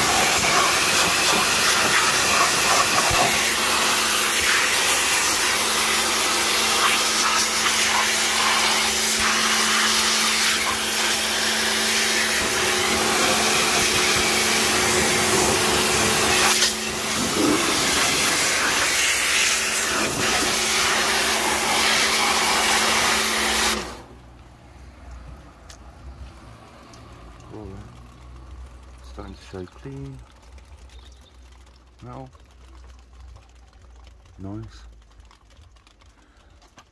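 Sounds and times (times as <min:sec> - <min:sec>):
pressure washer spray hiss: 0:00.0 - 0:24.0
pump humming: 0:00.0 - 0:36.9.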